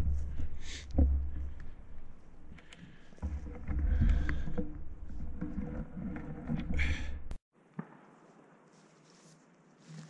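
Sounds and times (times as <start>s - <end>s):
footsteps on dry grass: 8.1s - 10.0s
clothing rustle: 8.2s - 10.0s.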